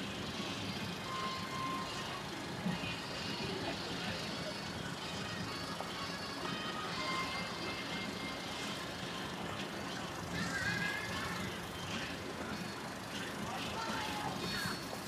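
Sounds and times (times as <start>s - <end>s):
city background noise: 0.0s - 15.0s
generator humming: 0.0s - 15.0s.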